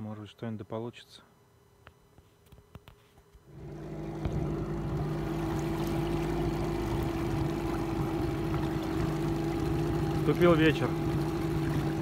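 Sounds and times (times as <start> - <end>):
outboard motor running: 3.4 - 12.0.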